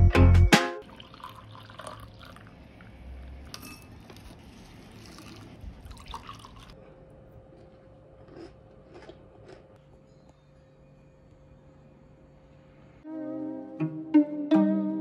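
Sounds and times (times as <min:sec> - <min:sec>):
water pouring into a glass: 0:00.8 - 0:03.6, 0:04.9 - 0:06.8
milk pouring onto cereal: 0:00.9 - 0:02.6, 0:04.1 - 0:06.8.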